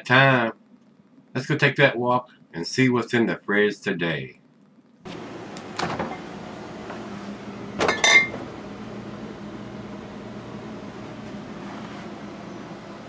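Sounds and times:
steady low hum: 0.0s - 13.0s
refrigerator door opening click: 5.6s - 6.2s
glass bottles clinking: 7.8s - 8.4s.

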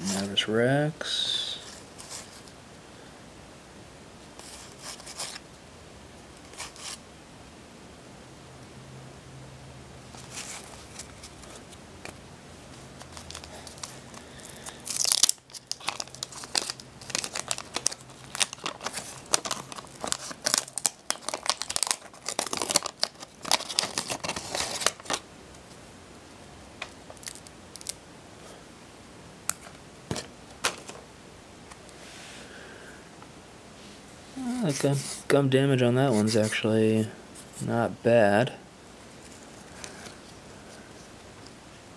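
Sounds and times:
paper crackling: 13.0s - 25.2s
wax paper wrapper ripping: 13.0s - 25.2s, 27.1s - 28.0s.

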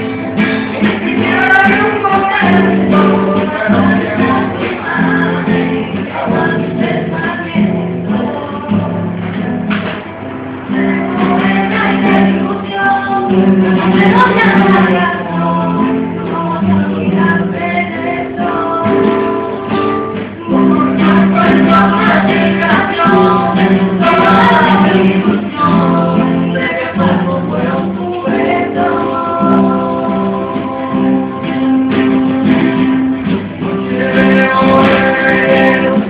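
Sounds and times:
acoustic guitar strummed and plucked: 0.0s - 36.0s
person singing long notes: 10.7s - 36.0s.

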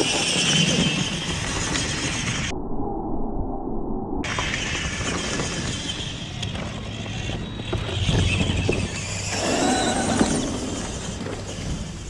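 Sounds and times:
electric toy truck motor running: 4.3s - 12.0s.

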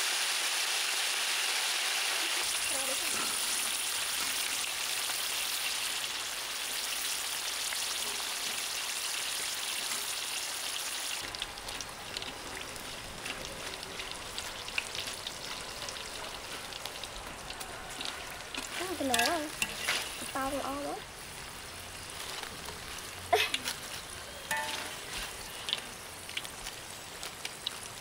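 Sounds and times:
oil sizzling and bubbling: 0.0s - 28.0s
crackles and pops: 21.4s - 28.0s.

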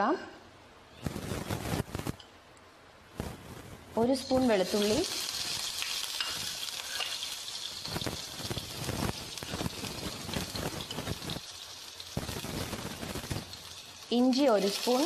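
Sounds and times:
garlic sizzling in hot oil: 4.0s - 15.0s.

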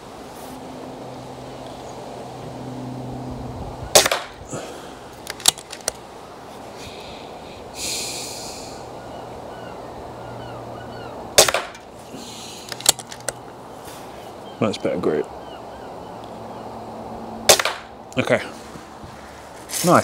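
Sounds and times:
air rifle shot cracking: 3.9s - 4.4s, 11.4s - 11.9s, 17.5s - 18.0s
rifle lever action clicks: 5.2s - 6.0s, 12.7s - 13.4s
brief hiss: 7.8s - 8.8s.

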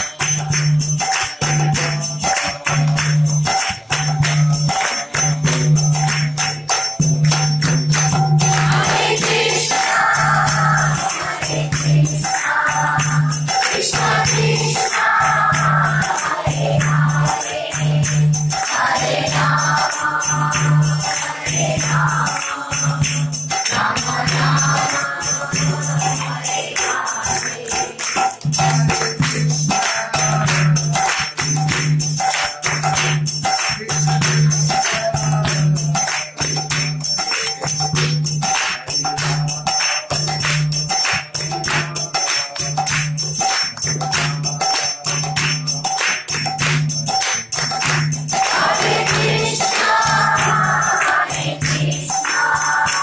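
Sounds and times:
jingling metal percussion: 0.0s - 53.0s
voices chanting: 8.6s - 18.1s, 48.4s - 53.0s.

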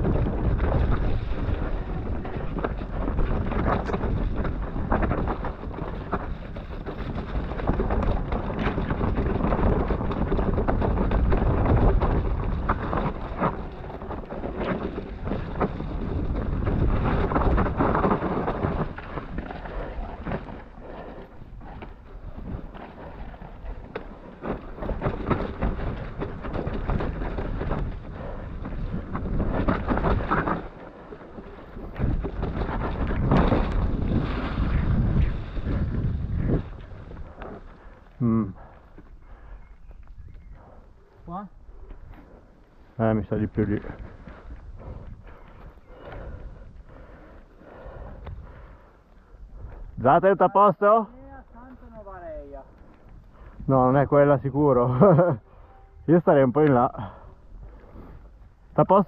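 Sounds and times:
tyres rolling through mud: 0.0s - 39.5s
bike knocking and rattling: 0.0s - 40.8s
wind buffeting microphone: 0.0s - 59.0s.

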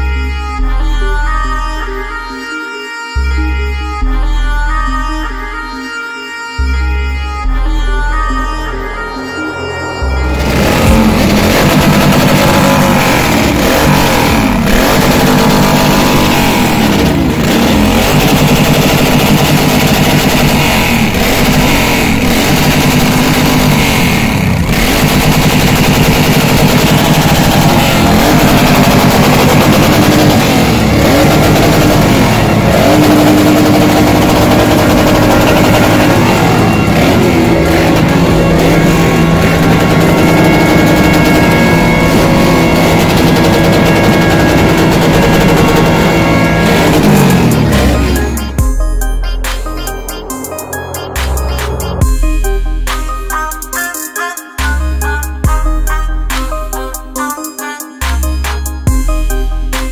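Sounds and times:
motorcycle engines revving: 8.9s - 48.8s.

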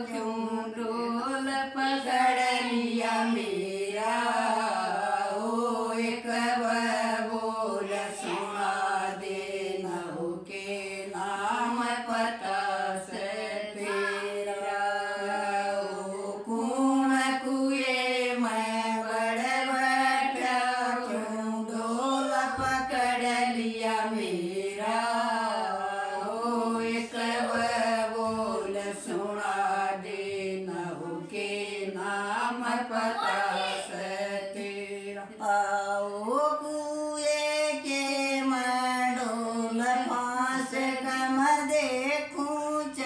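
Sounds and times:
women singing unaccompanied: 0.0s - 43.0s.

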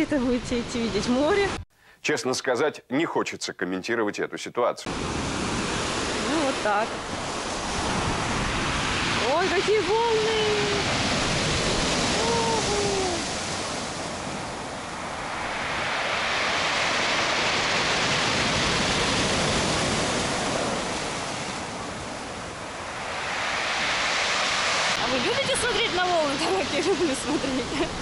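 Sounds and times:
heavy surf breaking on shore: 4.9s - 28.0s.

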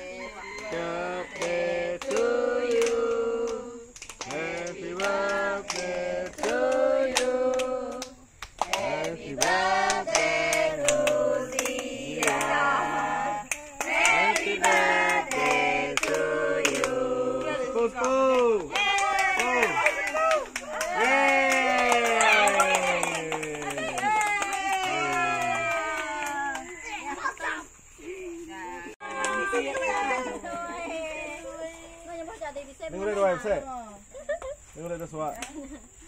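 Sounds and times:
women and children singing: 0.0s - 19.2s, 28.0s - 32.4s
hand claps: 1.4s - 12.7s, 13.5s - 26.8s, 29.0s - 30.0s.

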